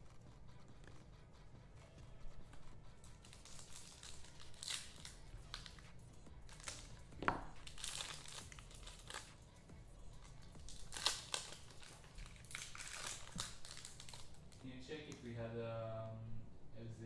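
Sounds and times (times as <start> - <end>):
card packs tearing open: 3.0 - 5.8, 6.5 - 9.4, 10.3 - 14.6
wrappers crinkling: 3.0 - 5.9, 6.5 - 9.5, 10.2 - 15.2.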